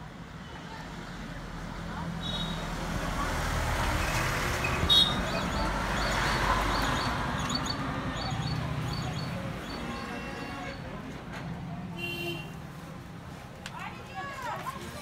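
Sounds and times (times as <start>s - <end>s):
vehicle passing: 2.7s - 9.8s.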